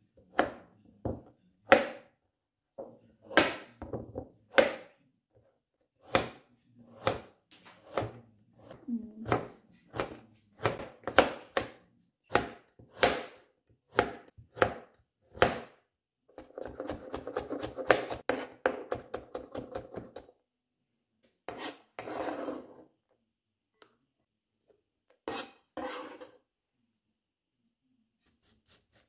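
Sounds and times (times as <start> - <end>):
knife chopping carrot on board: 0.3 - 2.1, 2.8 - 5.0, 6.0 - 20.3
knife blade scraping board: 21.5 - 22.8, 25.2 - 26.4.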